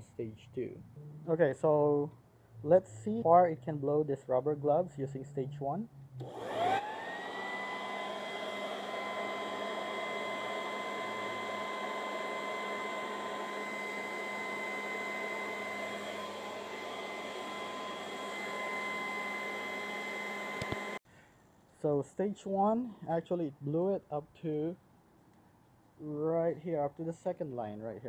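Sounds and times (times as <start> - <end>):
leaf blower motor whine: 6.2 - 21.0.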